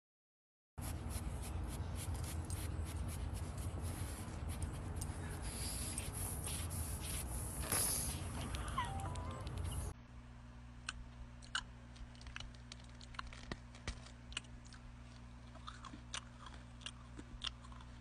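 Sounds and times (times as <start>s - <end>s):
low steady hum: 0.8s - 18.0s
cookies crunching and crackling: 10.9s - 18.0s
foil wrapper crinkling: 12.0s - 14.3s.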